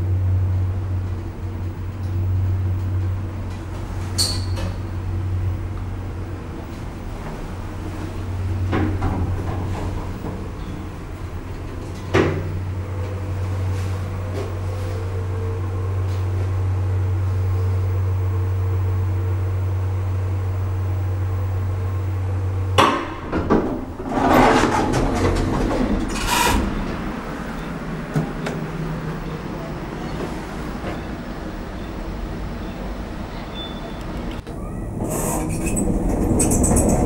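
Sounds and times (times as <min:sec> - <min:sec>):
elevator doors sliding open: 0:00.0 - 0:18.3, 0:21.2 - 0:37.0
elevator low hum: 0:00.0 - 0:37.0
elevator stopping clunk: 0:22.7 - 0:37.0.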